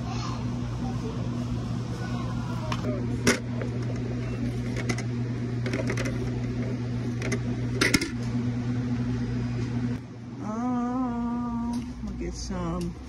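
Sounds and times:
low electrical hum: 0.0s - 13.0s
person humming: 10.4s - 12.1s.

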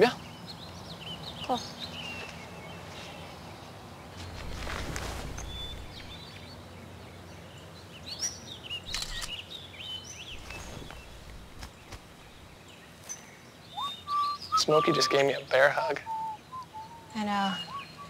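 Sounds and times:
songbirds chirping: 0.0s - 18.0s
noisy swish: 4.3s - 6.2s, 10.3s - 12.6s
faint steady hiss: 9.3s - 18.0s.

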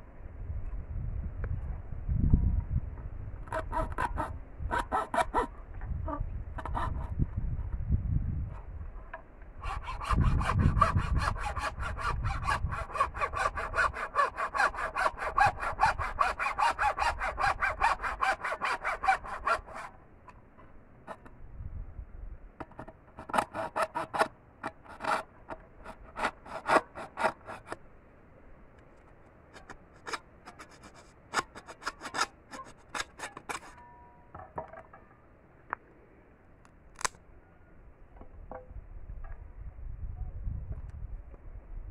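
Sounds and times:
hacksaw cutting bamboo: 3.5s - 5.5s, 9.6s - 20.0s, 22.8s - 27.8s, 29.5s - 33.8s.

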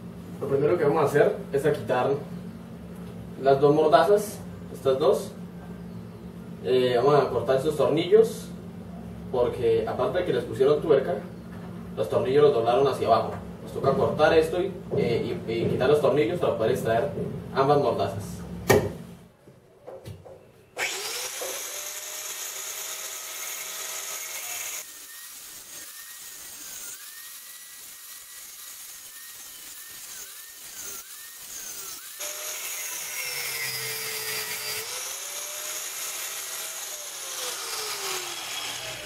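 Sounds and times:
angle grinder cutting metal: 20.8s - 39.0s.

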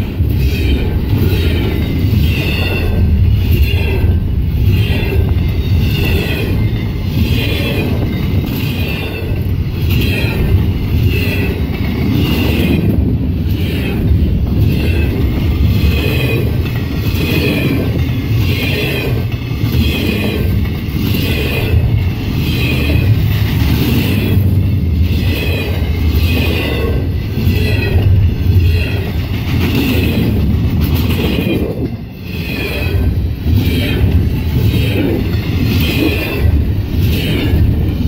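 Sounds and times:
freight train wheels rumbling: 0.0s - 38.0s.

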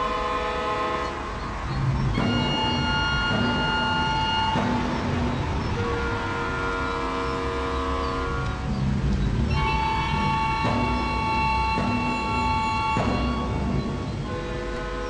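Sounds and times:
music of sustained chords: 1.0s - 15.0s.

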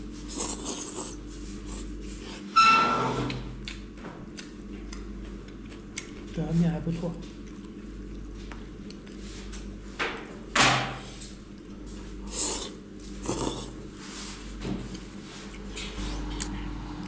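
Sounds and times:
man slurping noodles: 0.3s - 1.9s, 12.3s - 13.8s.

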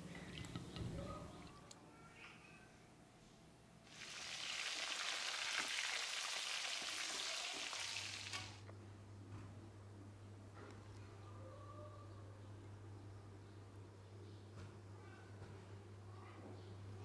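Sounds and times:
fish sizzling in hot oil: 3.9s - 8.6s.

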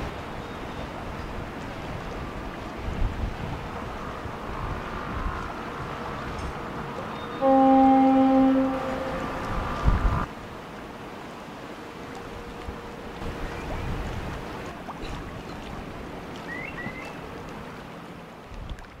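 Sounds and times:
wind rumbling on microphone: 0.0s - 10.7s, 12.1s - 19.0s
river water washing: 0.0s - 19.0s
bird chirping: 16.5s - 17.2s.

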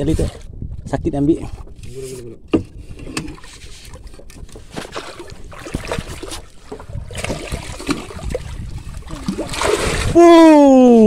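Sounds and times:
water sloshing against boat: 0.0s - 11.0s
knocks and scrapes on deck: 1.5s - 6.4s.

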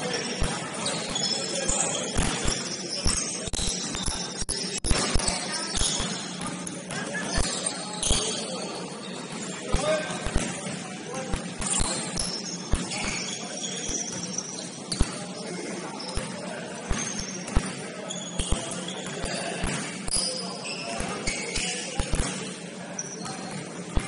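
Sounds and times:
din of players' voices: 0.0s - 24.0s
sneakers squeaking on court: 0.0s - 24.0s.

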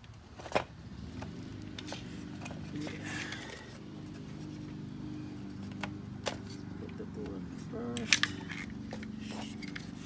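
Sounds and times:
plastic trim clicks and scrapes: 7.9s - 10.0s.

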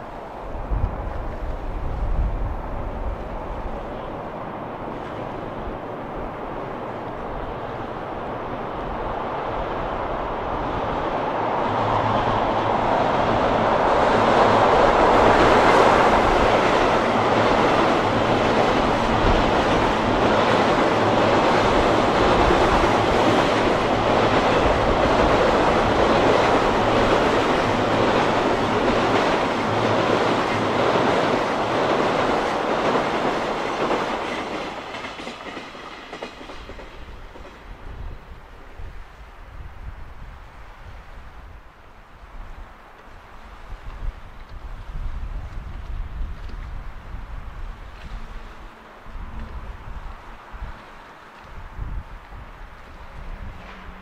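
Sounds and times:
train rumbling over bridge: 0.0s - 54.0s
train wheels clickety-clack: 12.1s - 38.2s, 52.2s - 54.0s.

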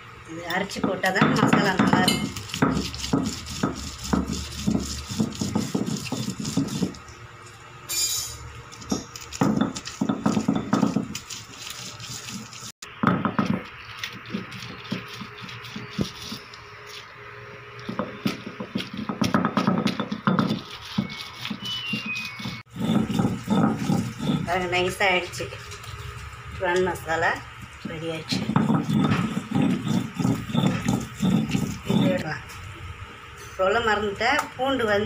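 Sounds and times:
stone scraping on stone: 2.1s - 7.0s, 18.9s - 25.0s, 28.3s - 32.3s.

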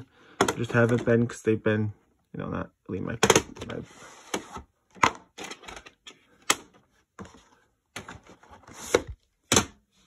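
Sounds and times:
plastic cases clacking on wood: 0.2s - 1.3s, 3.1s - 3.8s.

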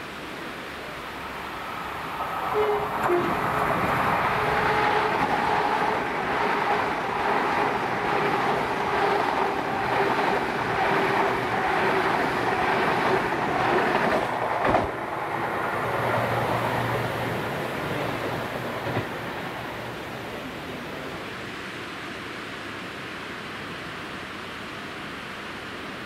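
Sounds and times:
train rumbling on track: 0.0s - 26.0s.

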